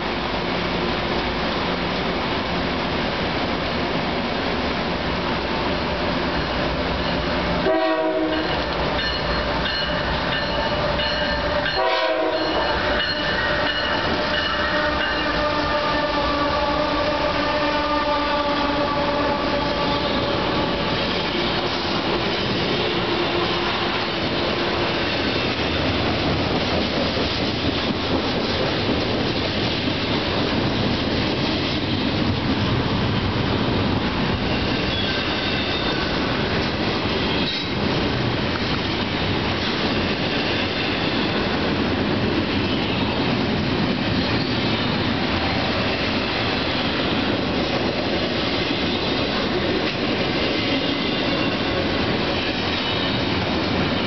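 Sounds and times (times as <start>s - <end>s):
freight train rumble: 0.0s - 54.0s
rail cars wheels clattering: 0.0s - 54.0s
locomotive air horn blasts: 7.6s - 8.7s, 11.6s - 21.2s, 22.9s - 24.3s.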